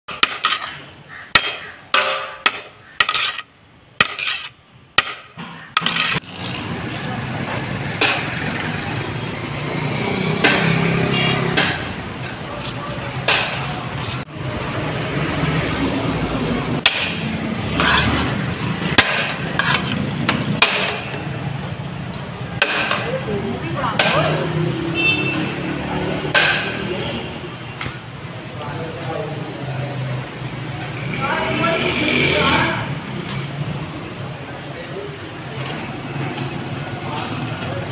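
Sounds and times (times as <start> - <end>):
street noise: 0.0 - 37.9
sharp knocks: 10.3 - 12.0.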